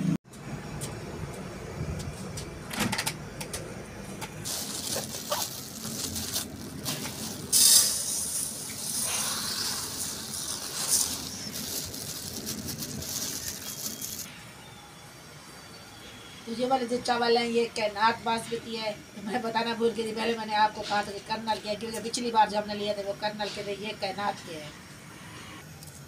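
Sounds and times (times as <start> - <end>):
plastic bag crinkling: 4.4 - 14.3
rice grains pouring into bowl: 4.5 - 14.3.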